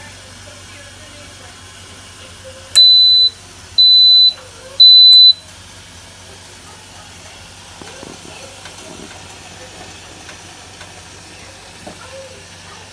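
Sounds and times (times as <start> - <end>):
pressure cooker beeping: 2.7 - 5.6.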